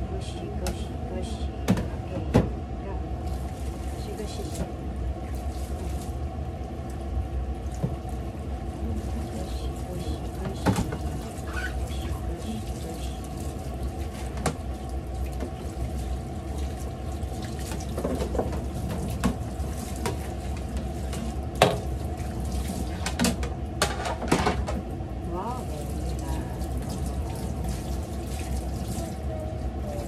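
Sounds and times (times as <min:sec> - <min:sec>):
tap running into sink: 0:10.4 - 0:11.4, 0:17.6 - 0:19.4
dishes clattering against sink: 0:23.0 - 0:24.8.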